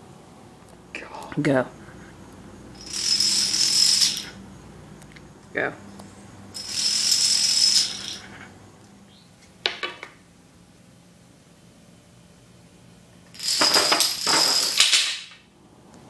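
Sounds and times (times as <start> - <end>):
plastic dominoes clattering on concrete: 2.8 - 4.4, 6.6 - 8.3, 13.4 - 15.4.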